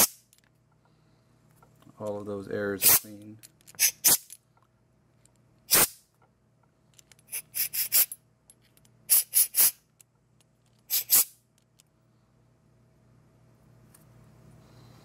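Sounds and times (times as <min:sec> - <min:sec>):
compressed air blasts hissing: 0:07.3 - 0:08.1, 0:09.1 - 0:09.8.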